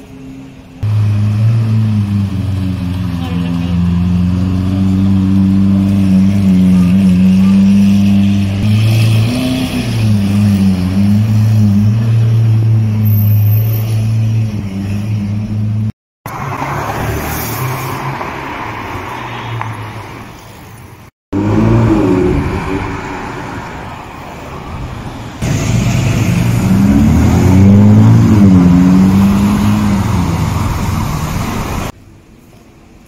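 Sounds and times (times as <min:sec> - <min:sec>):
street traffic: 0:00.0 - 0:33.0
sports car engine droning: 0:00.8 - 0:13.2
loud sports car engine: 0:00.8 - 0:13.6, 0:21.3 - 0:23.7, 0:25.4 - 0:32.0.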